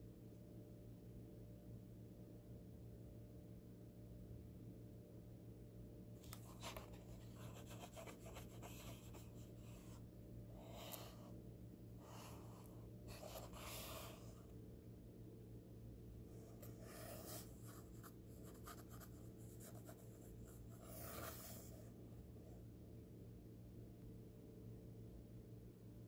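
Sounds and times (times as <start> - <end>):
steady low hum: 0.0 - 26.0
finger rubbing paper page: 6.3 - 10.0, 12.0 - 14.4, 16.5 - 21.7.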